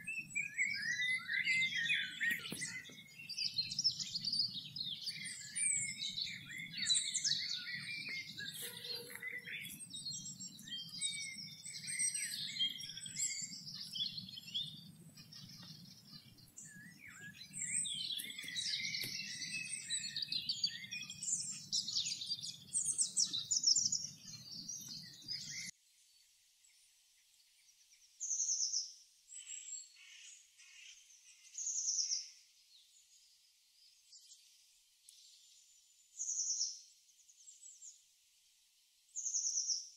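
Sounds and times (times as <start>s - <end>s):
songbirds singing: 0.0s - 39.9s
bird short high call: 7.6s - 9.8s.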